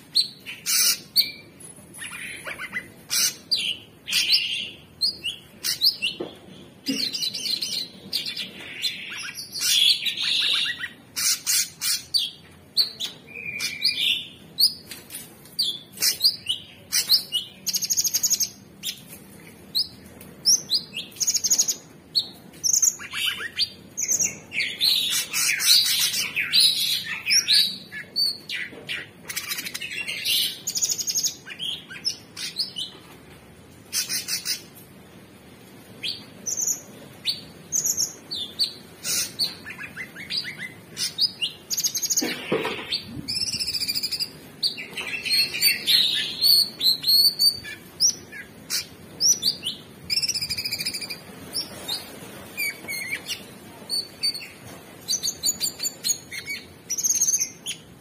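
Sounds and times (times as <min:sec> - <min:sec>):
bird singing trills and whistles: 0:06.9 - 0:14.8, 0:36.0 - 0:42.2, 0:42.9 - 0:57.8.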